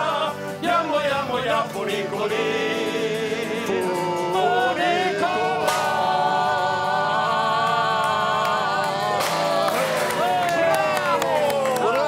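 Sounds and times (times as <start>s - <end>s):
group of people singing: 0.0s - 10.7s
sharp crash: 5.6s - 6.1s.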